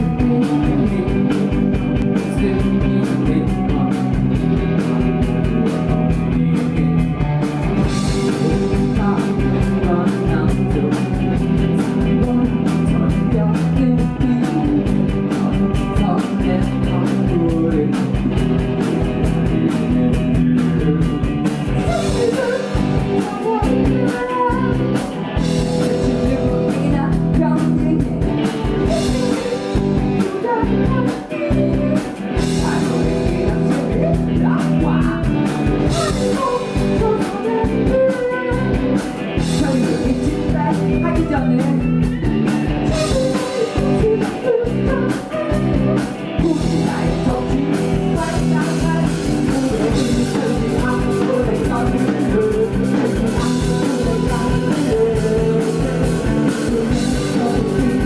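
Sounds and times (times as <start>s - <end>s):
man singing into microphone: 0.0s - 4.2s, 7.8s - 28.2s, 28.8s - 38.8s, 39.4s - 42.2s, 42.8s - 58.0s
drums: 0.0s - 58.0s
electric guitars: 0.0s - 58.0s.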